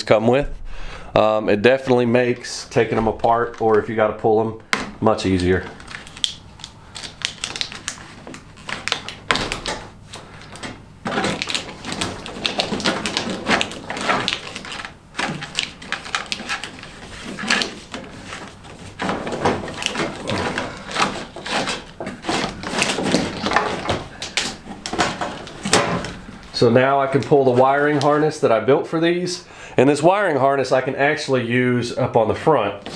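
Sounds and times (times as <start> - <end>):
plastic connectors clicking and rattling: 10.4 - 18.0.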